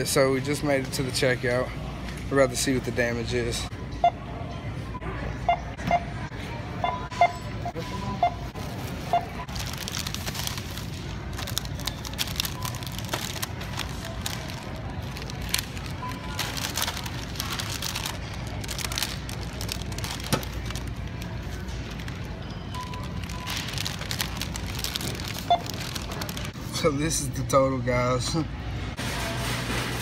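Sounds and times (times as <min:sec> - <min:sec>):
scanner beeping: 0:06.8 - 0:09.5
plastic bags rustling: 0:08.6 - 0:26.6.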